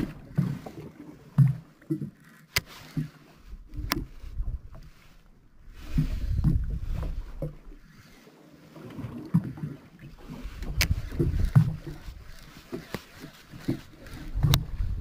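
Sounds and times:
water lapping against boat hull: 0:00.0 - 0:15.0
wind on microphone: 0:03.5 - 0:04.9, 0:05.6 - 0:07.7, 0:10.2 - 0:12.5, 0:13.9 - 0:15.0.

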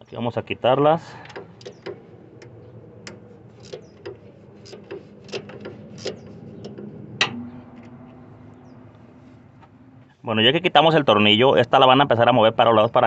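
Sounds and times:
ratchet wrench clicking: 0:03.6 - 0:06.2.

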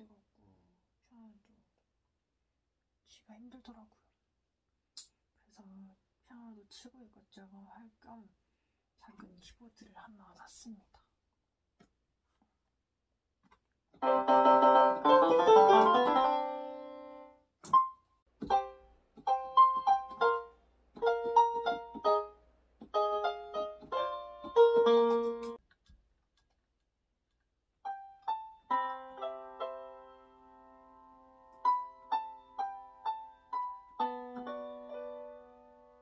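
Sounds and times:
electronic keyboard piano playing: 0:14.0 - 0:25.6, 0:27.8 - 0:36.0.

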